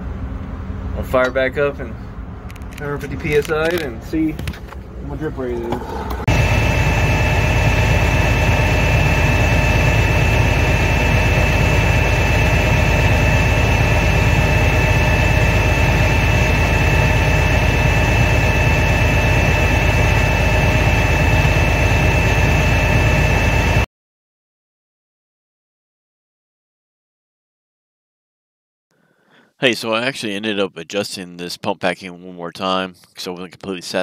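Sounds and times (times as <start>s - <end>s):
fire truck pump engine droning: 5.6s - 23.9s.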